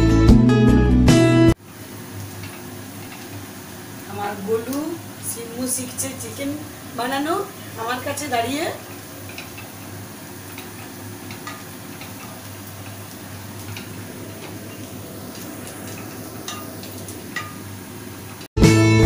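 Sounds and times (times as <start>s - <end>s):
spatula clicking against pan: 8.9s - 14.6s.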